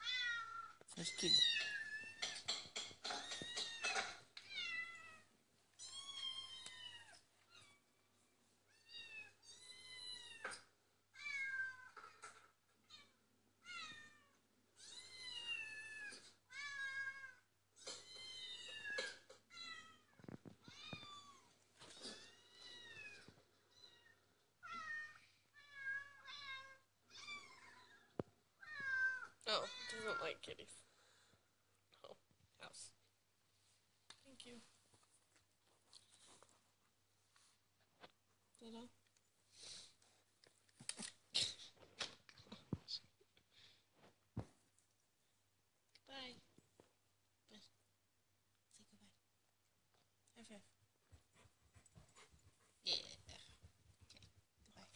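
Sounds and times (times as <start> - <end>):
cat meowing: 12.9 - 30.3.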